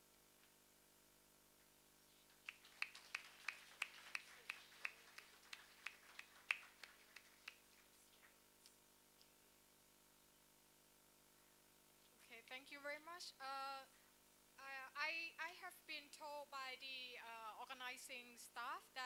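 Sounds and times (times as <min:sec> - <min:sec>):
audience applause: 0:02.3 - 0:08.4.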